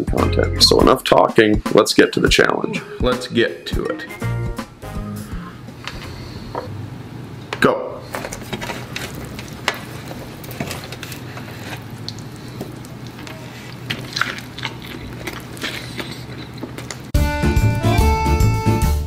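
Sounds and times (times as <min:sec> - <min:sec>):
chewing and mouth sounds: 0:08.2 - 0:17.2
pizza slice tearing: 0:08.4 - 0:17.1
fiddle music: 0:17.2 - 0:19.0.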